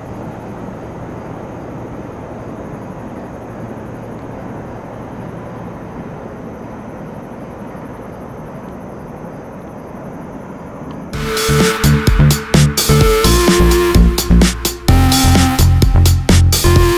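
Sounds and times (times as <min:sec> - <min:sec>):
electronic music with heavy beat: 0:11.2 - 0:16.9.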